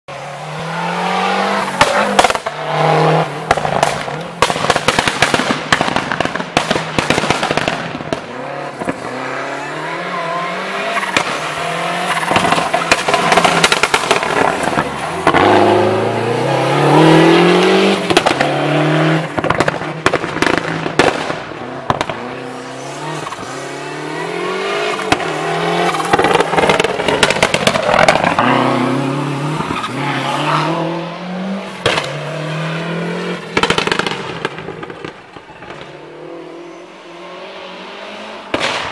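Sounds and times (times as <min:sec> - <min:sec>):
rally car engine revving: 0:00.1 - 0:04.6, 0:07.6 - 0:34.1
exhaust cracks and pops: 0:12.2 - 0:15.4, 0:19.3 - 0:22.2, 0:25.9 - 0:28.4.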